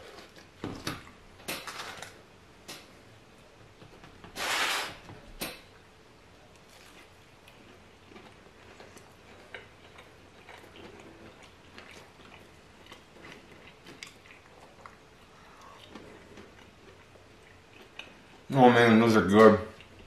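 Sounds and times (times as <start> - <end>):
chewing crunches: 6.5 - 18.5.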